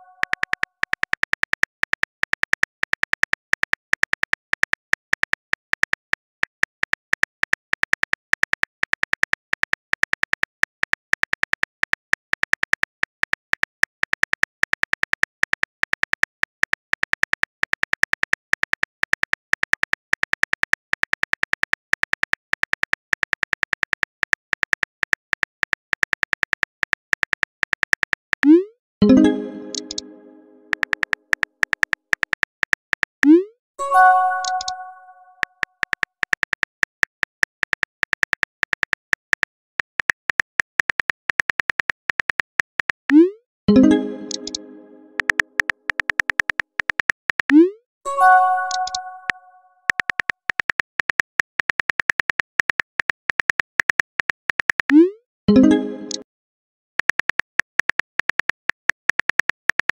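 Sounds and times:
keyboard tap clicks: 29.6 - 30.1, 34.4 - 34.8, 43.9 - 47.6, 48.6 - 54.9.

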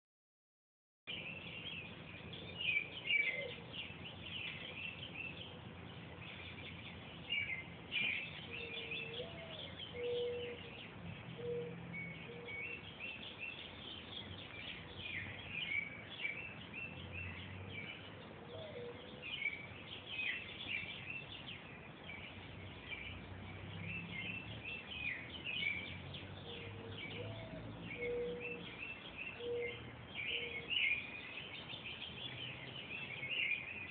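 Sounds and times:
small birds chirping: 1.1 - 33.9
owls hooting: 27.2 - 28.6.

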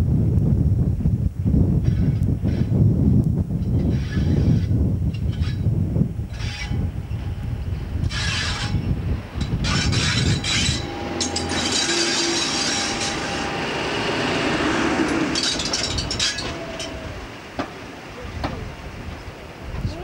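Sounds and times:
diesel locomotive passing: 6.0 - 20.0.

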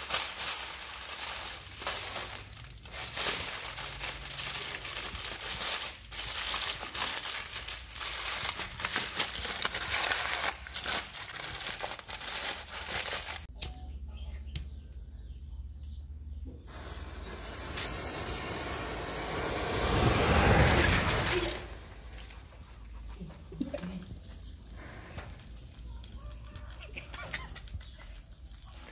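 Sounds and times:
aluminium foil crinkling: 0.0 - 13.5, 21.0 - 28.9
match heads igniting with hiss: 16.7 - 22.5.

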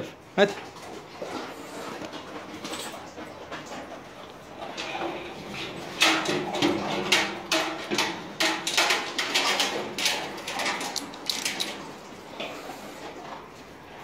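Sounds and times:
metal bowls clattering: 4.5 - 12.0
dogs crunching kibble: 9.0 - 12.0.

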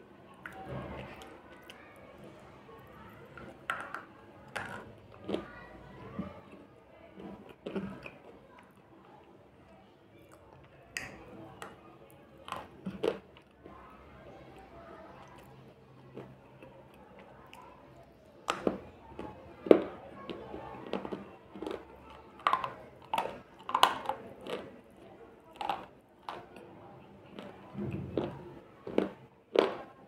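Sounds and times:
chewing: 4.5 - 9.4, 10.2 - 13.9, 14.5 - 17.8, 18.5 - 30.0.

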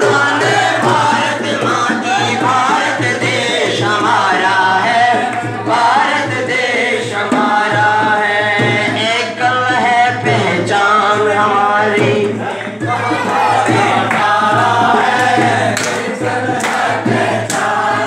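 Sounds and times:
steady drum beat: 0.0 - 18.0.

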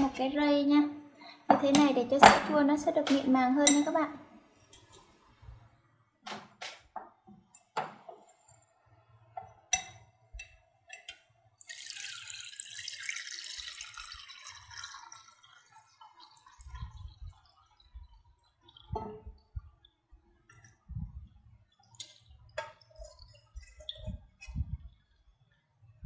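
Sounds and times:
liquid pouring through sieve: 11.6 - 19.8.

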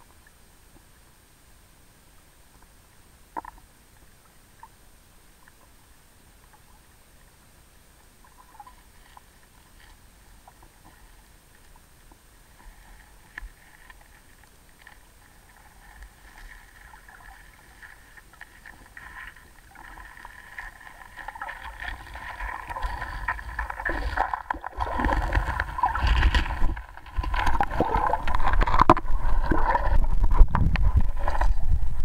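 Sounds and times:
underwater clicks and ticks: 3.3 - 4.8, 8.2 - 32.0
underwater water wash: 8.0 - 32.0.

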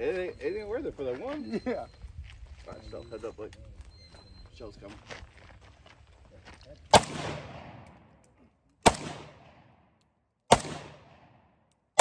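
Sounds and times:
pistol gunshots: 6.9 - 8.1, 8.8 - 9.9, 10.5 - 12.0.

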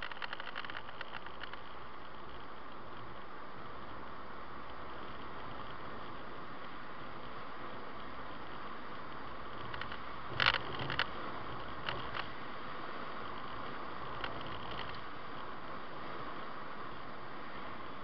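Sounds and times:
short clicks or rattles: 0.0 - 1.7
car road and tyre noise: 0.0 - 18.0.

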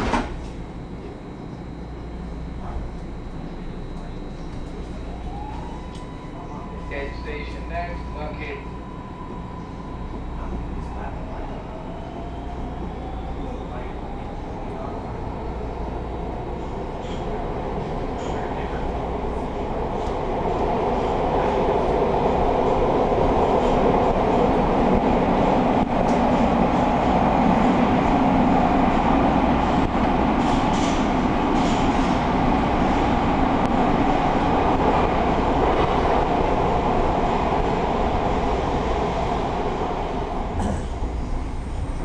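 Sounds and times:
train wheels rumbling on rails: 10.3 - 42.0.

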